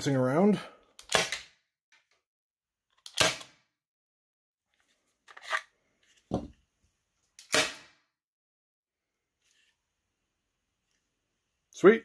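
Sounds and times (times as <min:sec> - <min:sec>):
air pistol shots: 0:07.4 - 0:08.0.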